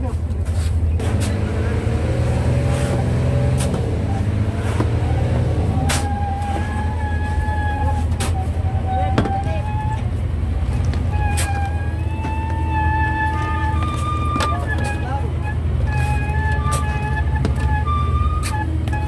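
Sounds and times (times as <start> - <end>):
boat engine droning: 0.0 - 19.0
wavering high tone: 5.0 - 10.1, 11.1 - 19.0.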